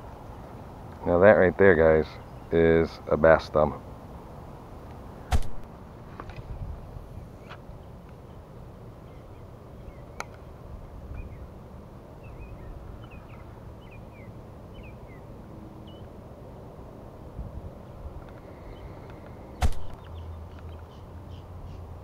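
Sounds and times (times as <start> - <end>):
small birds chirping: 1.8 - 3.1, 7.1 - 10.5, 11.1 - 11.6, 12.2 - 16.2, 17.8 - 22.0
sharp click: 5.3 - 6.4, 19.1 - 20.8.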